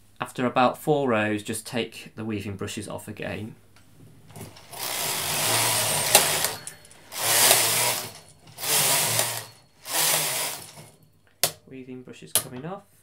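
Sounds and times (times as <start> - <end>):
knitting machine carriage rasping: 4.3 - 11.6.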